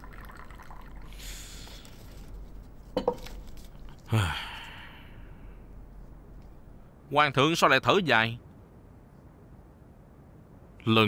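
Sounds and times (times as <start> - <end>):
tea pouring: 0.0 - 4.0
man sighing: 4.0 - 5.6.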